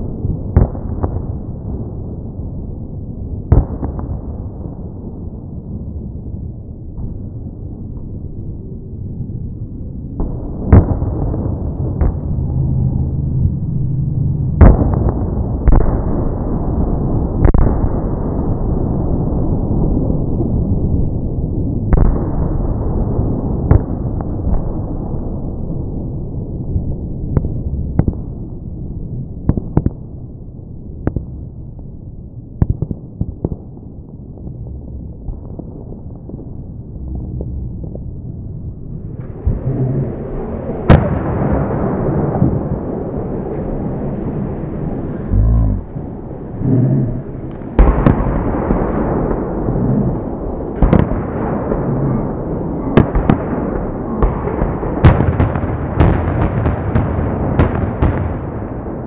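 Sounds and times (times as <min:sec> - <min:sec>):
low rumble: 0:06.4 - 0:17.2, 0:33.8 - 0:52.4
fireworks display din: 0:10.8 - 0:15.4, 0:39.0 - 0:41.4
fireworks bangs and pops: 0:47.5 - 0:52.0, 0:53.0 - 0:58.7.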